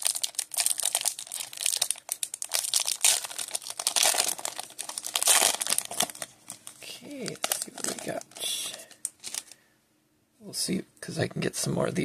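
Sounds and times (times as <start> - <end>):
foil wrapper crinkling and tearing: 0.0 - 9.6.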